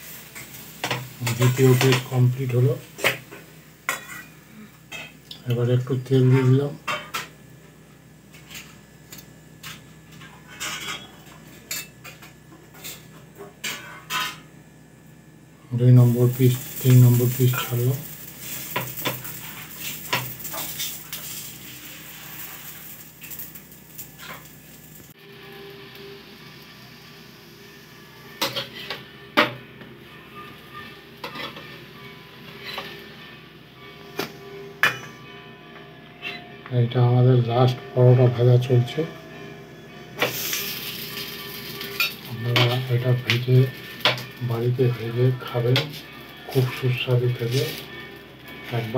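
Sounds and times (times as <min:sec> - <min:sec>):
flatbread sizzling in oil: 0:00.0 - 0:04.3, 0:15.8 - 0:29.6, 0:40.2 - 0:48.0
metal utensils clinking and scraping: 0:00.3 - 0:03.3, 0:03.9 - 0:04.3, 0:08.4 - 0:14.4, 0:16.0 - 0:24.6, 0:28.4 - 0:29.5, 0:30.7 - 0:31.8, 0:32.5 - 0:33.0, 0:40.2 - 0:48.9.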